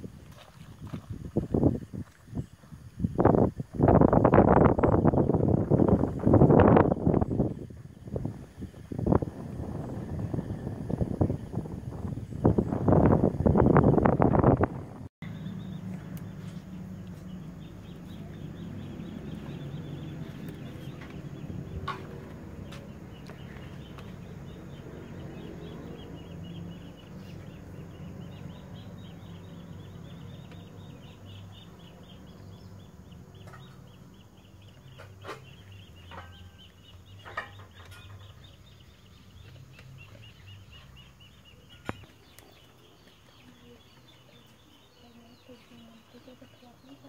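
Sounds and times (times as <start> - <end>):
low rumble: 4.7 - 34.3.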